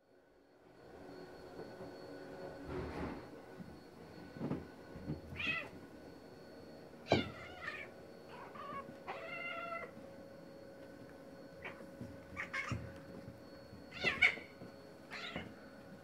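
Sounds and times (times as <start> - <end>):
cats fighting and yowling: 5.2 - 5.9, 7.0 - 10.1, 11.5 - 15.6.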